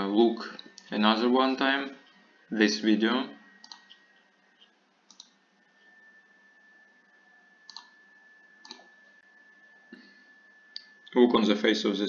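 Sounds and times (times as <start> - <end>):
room hiss: 0.0 - 12.0
thin high whine: 0.0 - 12.0
computer mouse clicks: 3.6 - 4.0, 4.6 - 5.4, 7.7 - 8.0, 8.6 - 8.9.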